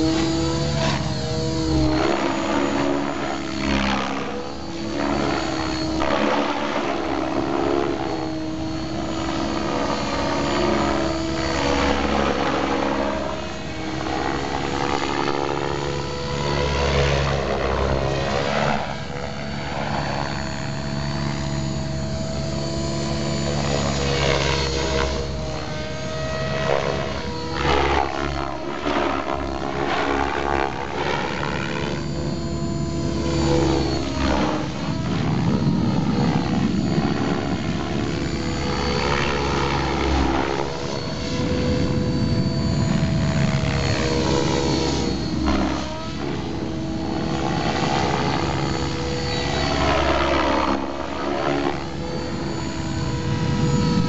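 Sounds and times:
electric motor whine: 0:00.0 - 0:54.0
rotor blades whooshing: 0:28.9 - 0:50.0.

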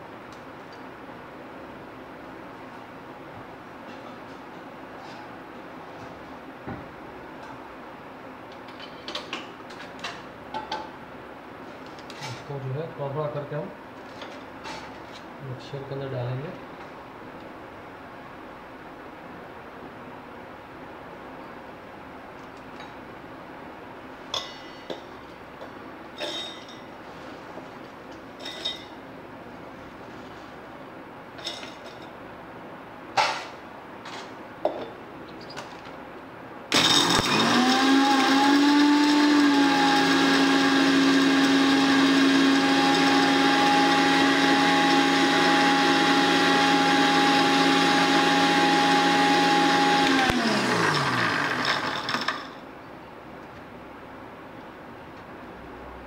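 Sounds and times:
mixer grinder motor running: 0:36.7 - 0:52.5.

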